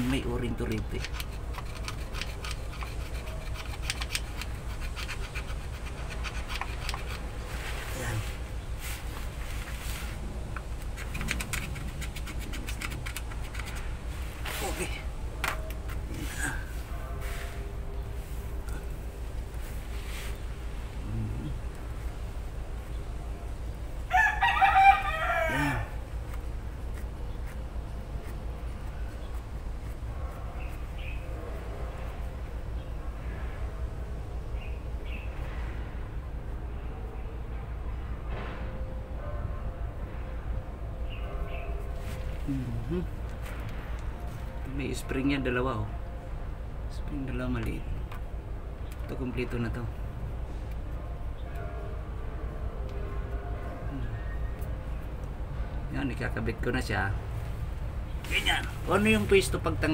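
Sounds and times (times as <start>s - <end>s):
steady low hum: 0.0s - 24.1s
screwdriver scraping on metal: 0.5s - 7.4s, 10.8s - 13.9s
rooster crowing: 24.1s - 26.1s.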